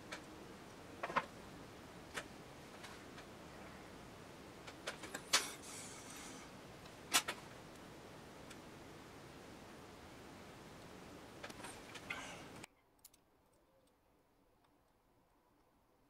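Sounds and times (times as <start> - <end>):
brief scraping hiss: 5.3 - 6.5.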